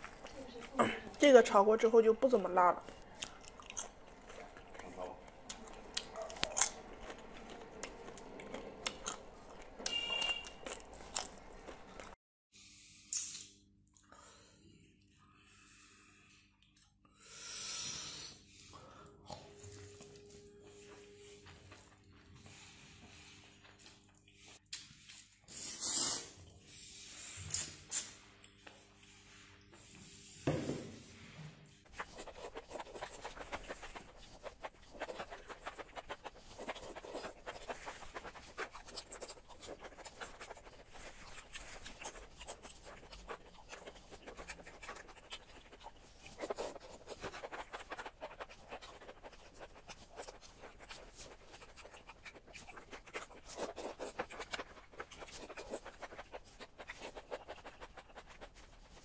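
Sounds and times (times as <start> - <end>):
wet slurping and chewing: 0.0 - 12.2, 31.9 - 59.0.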